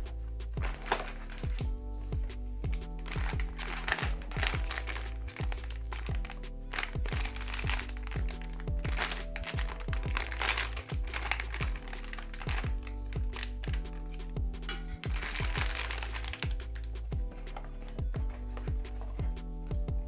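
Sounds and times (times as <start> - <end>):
background music with beat: 0.0 - 20.0
foil bag crinkling and tearing: 0.6 - 1.6, 3.1 - 13.9, 15.0 - 16.6.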